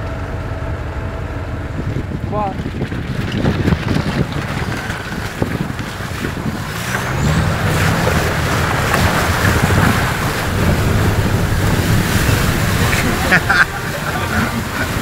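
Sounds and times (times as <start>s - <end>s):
off-road engine running: 0.0s - 15.0s
water rushing and splashing: 1.8s - 15.0s.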